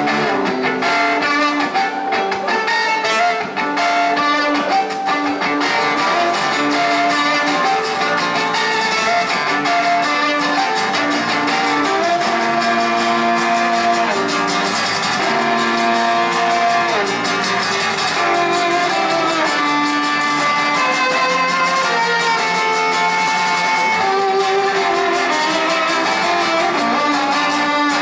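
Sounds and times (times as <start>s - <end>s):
bowed violin melody: 0.0s - 28.0s
strummed acoustic guitar: 0.0s - 28.0s.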